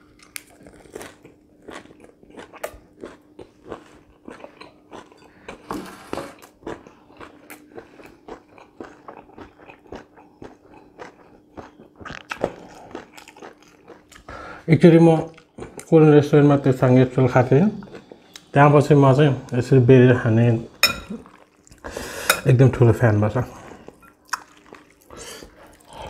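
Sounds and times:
crunchy chewing: 0.0s - 14.6s, 17.1s - 18.6s, 23.5s - 26.0s.

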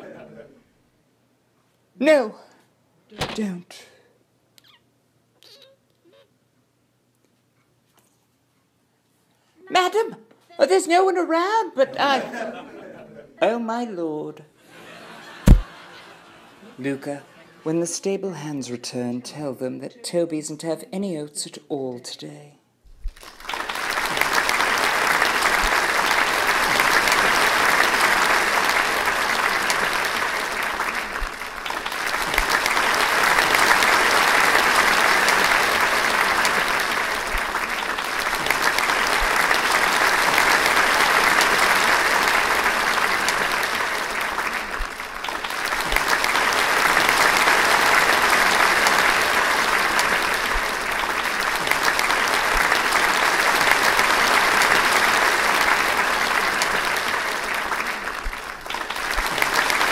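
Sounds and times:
audience applauding: 14.9s - 16.3s, 23.1s - 59.9s.

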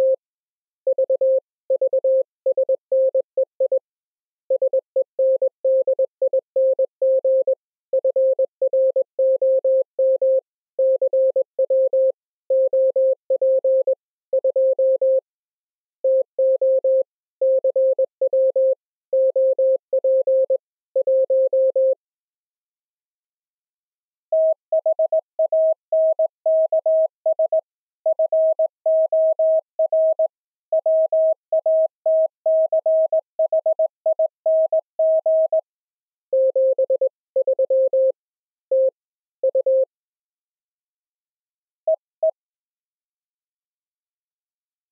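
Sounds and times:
low morse code tone: 36.3s - 39.9s.

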